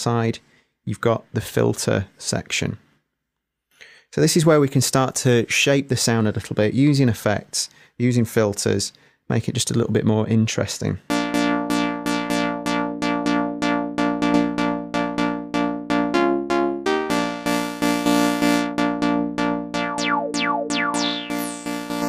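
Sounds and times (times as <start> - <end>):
synth lead repeating short notes: 11.1 - 22.0.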